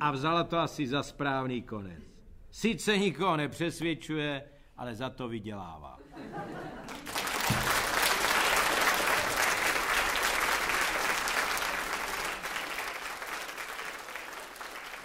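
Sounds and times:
audience applauding: 6.8s - 15.0s.

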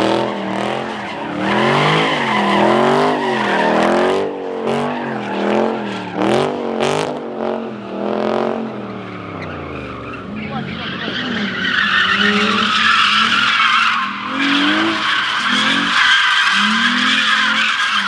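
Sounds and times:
car engine revving: 0.0s - 18.0s
tires squealing: 0.0s - 18.0s.

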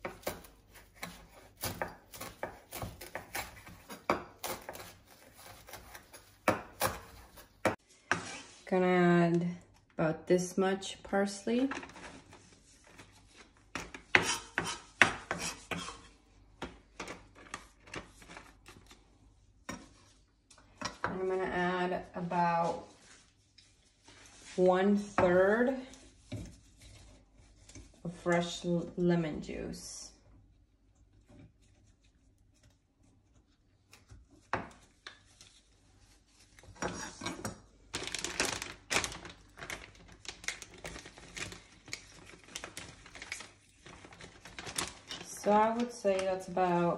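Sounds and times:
knife scraping on cutting board: 8.1s - 8.6s, 14.1s - 16.1s
plastic bag crinkling: 37.9s - 46.0s.

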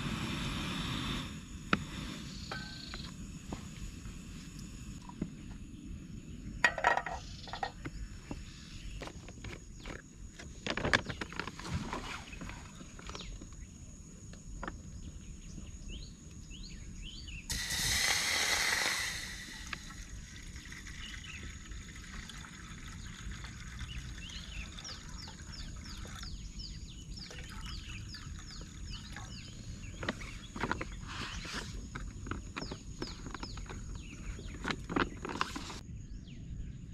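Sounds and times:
loud rushing hiss: 0.0s - 5.0s, 17.5s - 20.4s
high insect drone: 0.0s - 11.0s, 12.5s - 35.0s
small birds chirping: 0.7s - 36.9s.

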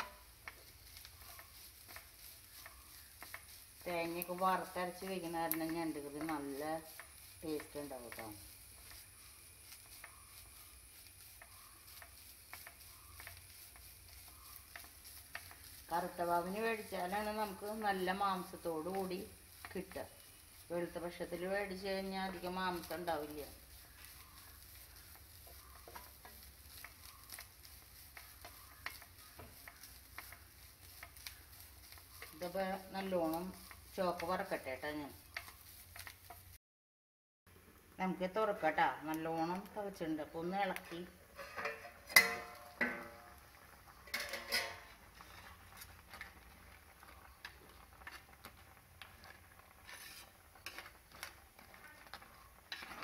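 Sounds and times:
ladle stirring boiling curry: 0.0s - 36.6s, 38.4s - 53.0s
wooden spatula scraping a pan: 0.0s - 36.6s, 40.6s - 53.0s
metal lid clanging: 41.3s - 43.4s, 44.0s - 44.9s
metal clatter: 41.4s - 43.3s, 44.0s - 46.3s.

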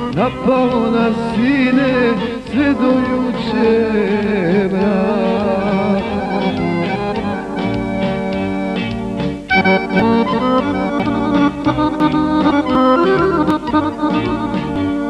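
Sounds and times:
man singing folk song: 0.0s - 7.0s
instrumental backing: 0.0s - 15.0s.

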